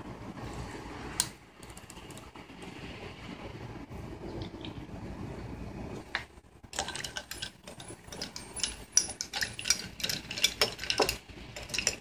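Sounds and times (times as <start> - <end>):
spoon clinking ice and glass: 6.7 - 12.0.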